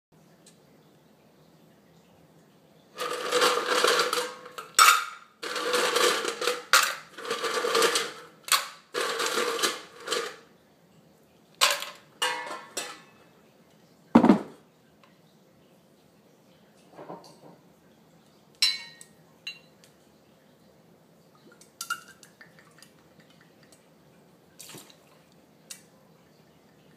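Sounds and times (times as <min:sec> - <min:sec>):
ice cubes clinking on steel: 0:03.0 - 0:10.4
bucket thump on wooden table: 0:14.2 - 0:14.6.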